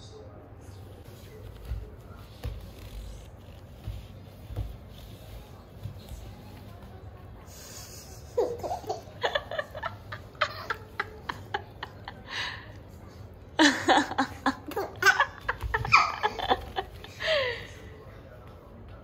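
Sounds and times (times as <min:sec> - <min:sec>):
baby laughing: 0:08.3 - 0:11.6, 0:14.5 - 0:17.0.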